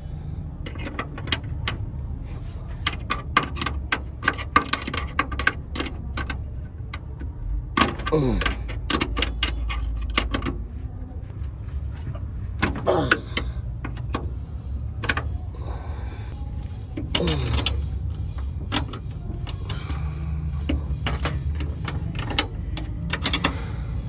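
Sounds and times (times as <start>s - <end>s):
wrench clicking on metal bolts: 2.8s - 7.1s, 7.7s - 10.6s, 17.0s - 24.0s.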